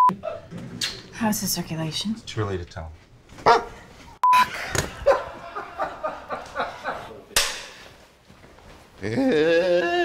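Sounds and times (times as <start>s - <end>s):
people laughing and snickering: 4.3s - 7.3s.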